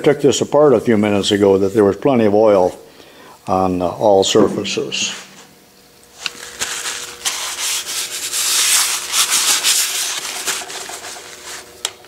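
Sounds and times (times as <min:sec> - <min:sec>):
hand rubbing on metal: 0:06.2 - 0:11.7.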